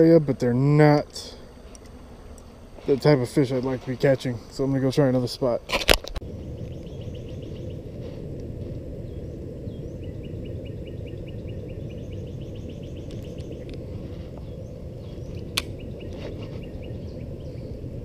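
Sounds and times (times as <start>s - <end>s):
bird chirping: 6.2s - 7.9s, 9.0s - 13.8s, 14.4s - 17.8s
low rumble: 6.2s - 18.0s.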